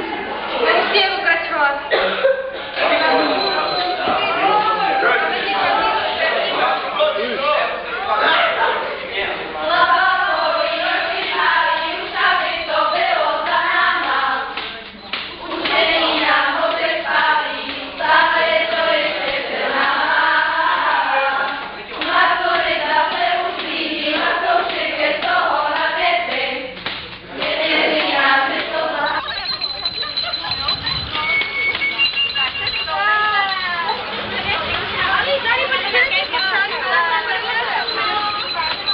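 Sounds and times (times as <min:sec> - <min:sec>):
women singing together: 0:09.6 - 0:31.4, 0:32.0 - 0:38.9.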